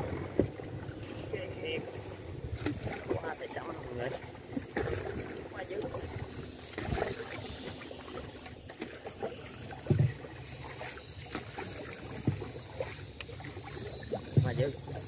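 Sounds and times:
boat engine low rumble: 0:00.0 - 0:15.0
water noise: 0:00.0 - 0:15.0.

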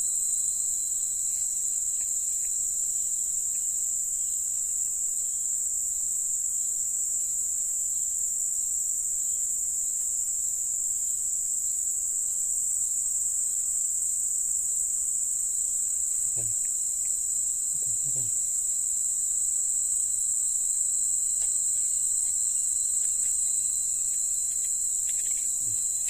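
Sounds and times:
insect chorus shrilling: 0:00.0 - 0:26.0.

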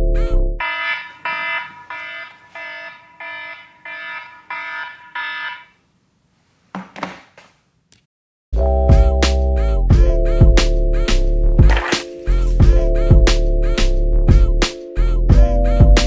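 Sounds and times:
alarm beeping: 0:00.6 - 0:05.8.

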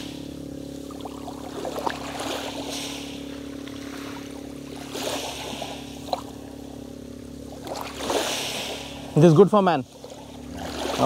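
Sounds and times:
boat engine hum: 0:00.0 - 0:11.0
small waves washing ashore: 0:00.0 - 0:11.0.

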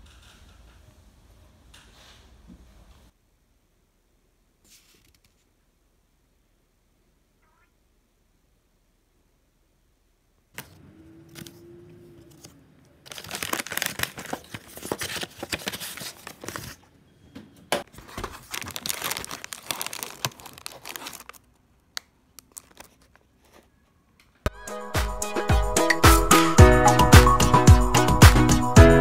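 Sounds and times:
paper and cardboard crinkling: 0:12.3 - 0:16.9, 0:17.8 - 0:23.8
plastic wrapping clicks: 0:13.1 - 0:16.6, 0:17.9 - 0:23.3.

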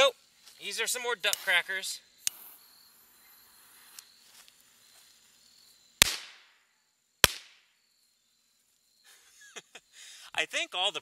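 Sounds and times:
firecracker bangs: 0:06.0 - 0:06.5, 0:07.2 - 0:07.6.

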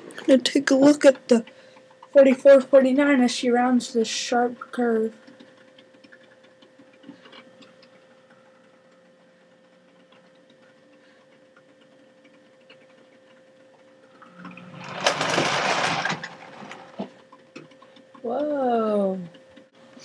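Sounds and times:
wheels clicking on track: 0:14.4 - 0:17.1.

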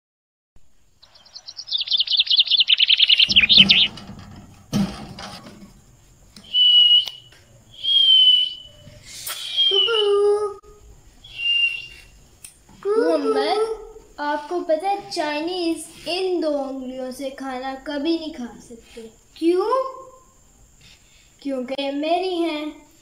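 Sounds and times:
bird whistles: 0:01.0 - 0:03.9, 0:06.4 - 0:10.2, 0:11.2 - 0:12.2
budgerigars chirping: 0:01.0 - 0:03.9
dull knocks: 0:03.2 - 0:05.8.

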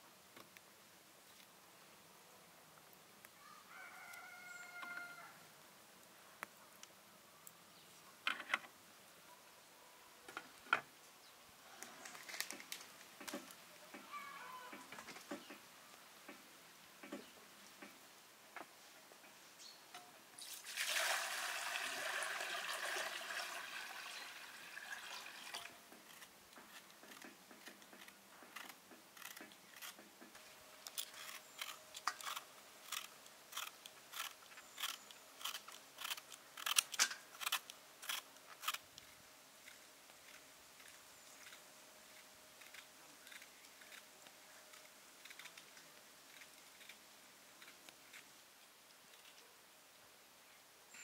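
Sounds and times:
knife scraping peel from fruit: 0:30.8 - 0:38.8, 0:42.2 - 0:47.0.

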